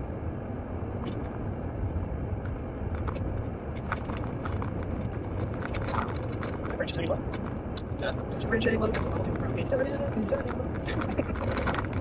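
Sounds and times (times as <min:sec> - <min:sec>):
car driving from inside cabin: 0:00.0 - 0:12.0.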